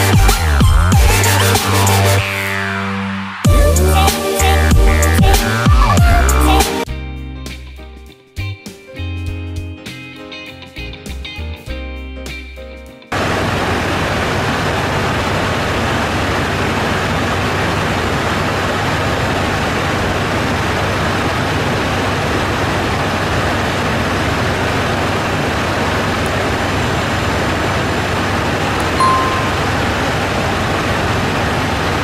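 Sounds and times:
short beep: 29.0s - 30.0s.

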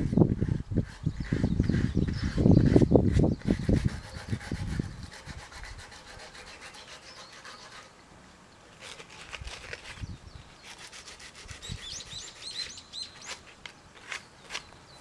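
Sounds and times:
faint scratching and rubbing: 0.0s - 7.9s
small bird chirping: 1.1s - 4.9s, 9.9s - 13.5s.

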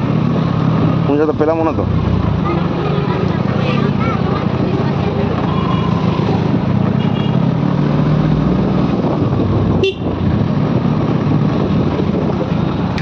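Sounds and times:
vehicle engine hum: 0.0s - 13.0s
high horn toots: 9.8s - 10.1s.

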